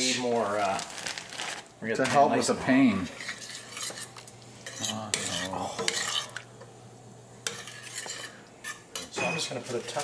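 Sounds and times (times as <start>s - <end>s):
spoon stirring thick curry: 7.5s - 9.1s.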